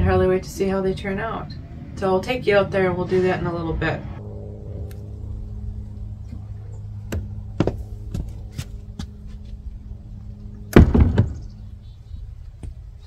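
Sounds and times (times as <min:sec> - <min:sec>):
steady low hum: 0:00.0 - 0:13.0
door banging shut: 0:10.8 - 0:11.4.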